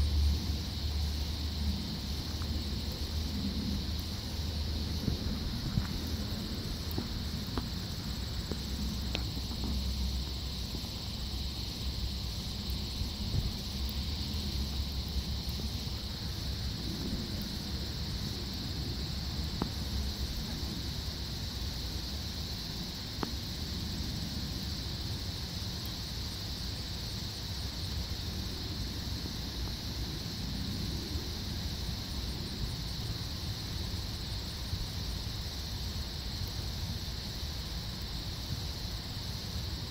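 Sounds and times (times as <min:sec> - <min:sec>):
insects chirring: 0:00.0 - 0:39.9
faint ticks: 0:01.6 - 0:07.8, 0:08.4 - 0:10.9, 0:19.5 - 0:20.8, 0:23.1 - 0:23.9, 0:36.4 - 0:36.6.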